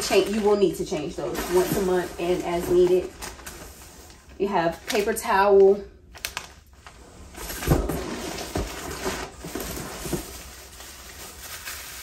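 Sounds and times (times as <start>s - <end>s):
rustling of packaged supplies: 0.0s - 12.0s.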